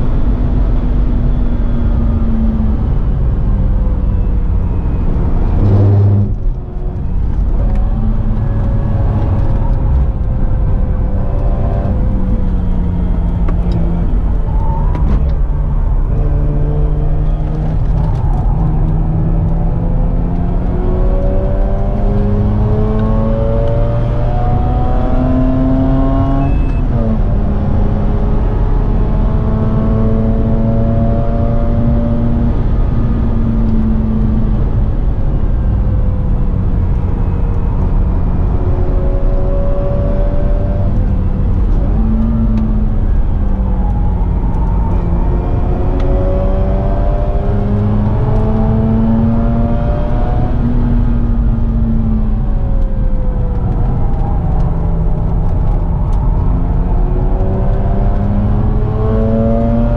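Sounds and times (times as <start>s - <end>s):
road and wind noise: 0.0s - 59.9s
rotary engine revving: 5.0s - 9.8s.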